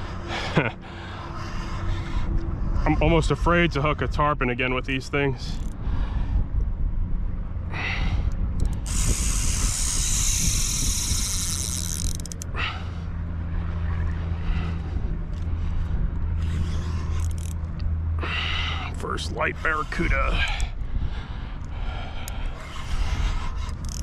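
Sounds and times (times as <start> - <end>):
wind on microphone: 1.6 - 18.2, 19.3 - 24.0
fishing reel drag buzzing: 5.5 - 5.8, 7.7 - 18.7, 21.7 - 24.0.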